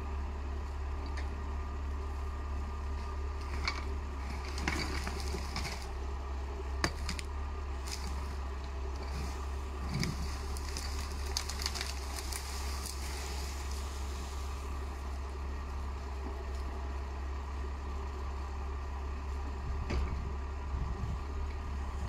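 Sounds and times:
tractor diesel engine running: 0:00.0 - 0:22.0
brushwood cracking and snapping: 0:03.5 - 0:06.0, 0:06.8 - 0:15.0.

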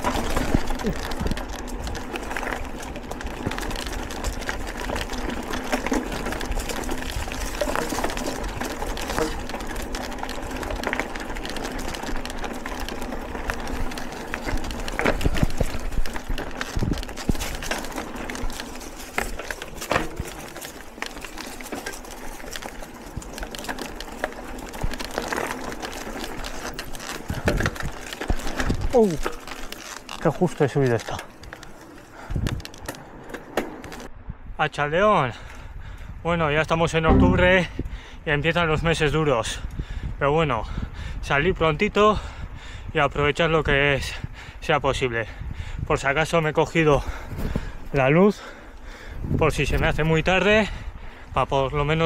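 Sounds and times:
bike knocking and rattling: 0:00.0 - 0:34.1
bike tyres rolling on dirt: 0:00.0 - 0:34.2, 0:34.8 - 0:52.0.

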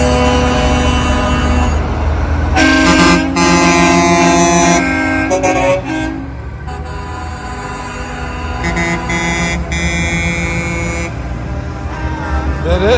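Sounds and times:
truck air horn: 0:00.0 - 0:12.9
truck engines rumbling: 0:00.0 - 0:12.9.

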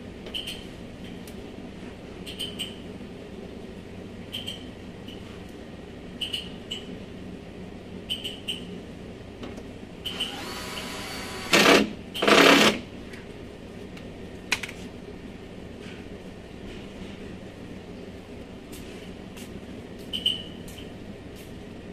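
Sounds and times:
drill clicks: 0:10.1 - 0:12.8
drill motor whine: 0:10.1 - 0:12.8
drill running at full speed: 0:10.1 - 0:12.8.

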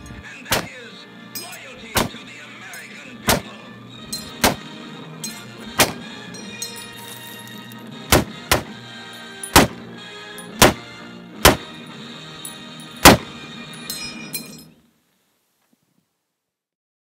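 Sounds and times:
background music: 0:00.0 - 0:14.8
rifle shots: 0:00.5 - 0:00.8, 0:02.0 - 0:02.2, 0:03.3 - 0:03.6, 0:04.3 - 0:04.8, 0:05.7 - 0:06.1, 0:08.1 - 0:08.8, 0:09.5 - 0:09.9, 0:10.6 - 0:11.8, 0:13.0 - 0:13.4.

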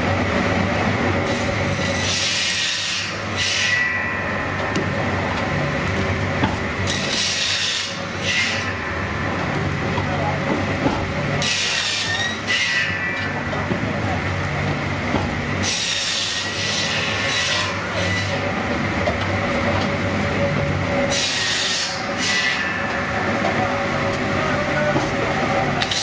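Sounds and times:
saw cutting logs rasping hiss: 0:01.3 - 0:03.9, 0:06.8 - 0:08.8, 0:11.4 - 0:13.0, 0:15.6 - 0:18.4, 0:21.1 - 0:22.8.

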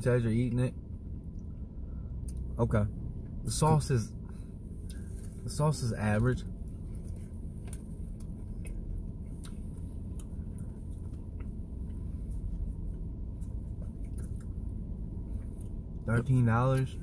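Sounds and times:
low hum: 0:00.0 - 0:17.0
people chewing: 0:06.6 - 0:15.8.

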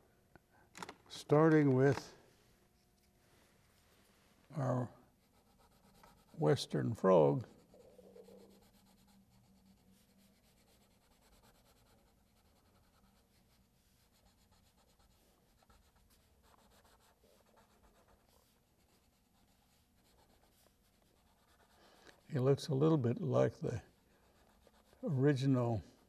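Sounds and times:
crayon scratching on paper: 0:05.2 - 0:26.0.

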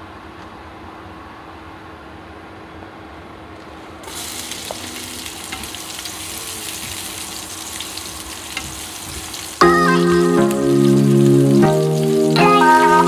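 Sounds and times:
stir-fry sizzling in a pan: 0:04.0 - 0:13.0
music: 0:09.6 - 0:13.0.

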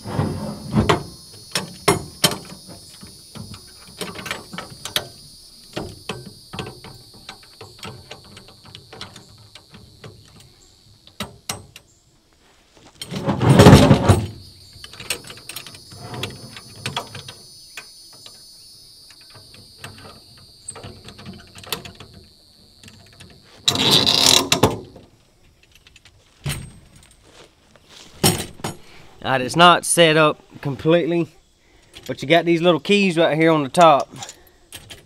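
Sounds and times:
metal cart scraping clatter: 0:00.0 - 0:01.1, 0:13.0 - 0:14.3
metal frame clicking and rattling: 0:33.8 - 0:35.0.

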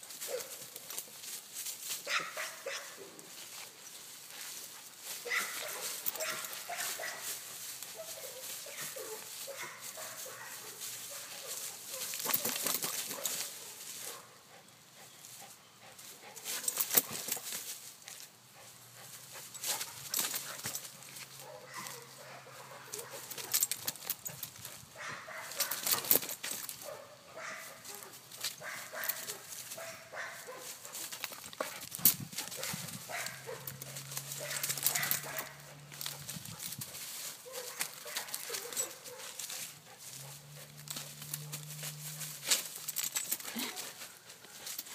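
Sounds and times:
dry leaves crackling: 0:00.0 - 0:14.4, 0:16.0 - 0:44.9.

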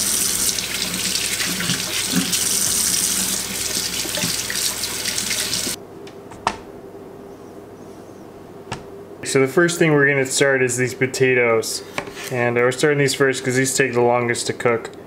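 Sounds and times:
faucet water splashing: 0:00.0 - 0:05.8.

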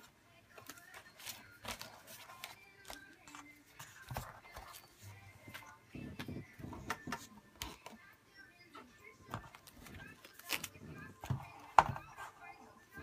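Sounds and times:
paper pages rustling: 0:00.5 - 0:05.6.

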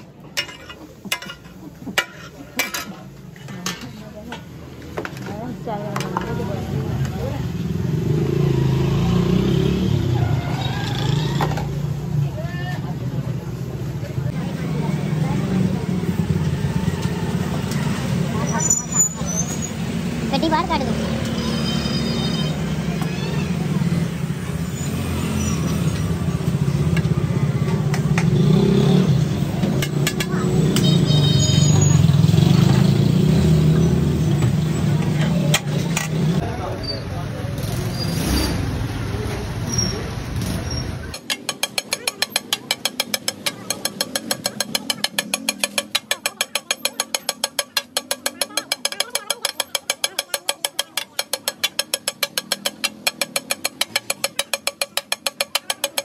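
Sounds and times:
metal spatulas clanging on griddle: 0:00.2 - 0:05.2, 0:41.2 - 0:56.0.

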